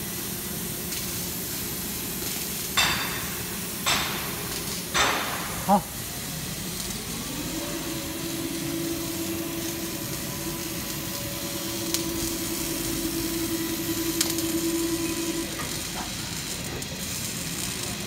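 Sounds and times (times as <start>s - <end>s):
workshop background noise: 0.9s - 18.0s
electric motor humming: 7.0s - 15.9s.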